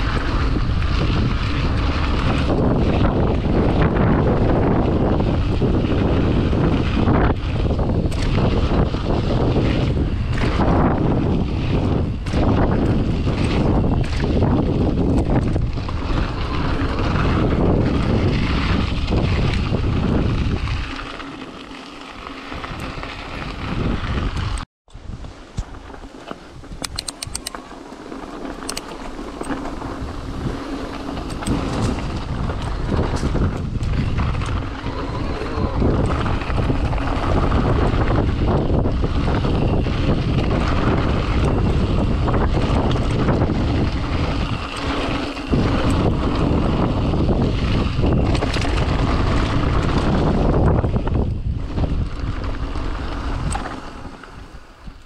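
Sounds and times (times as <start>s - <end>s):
bike tyres on trail: 0.0s - 55.0s
wind buffeting microphone: 0.0s - 55.0s
clicks and rattles: 26.7s - 27.6s.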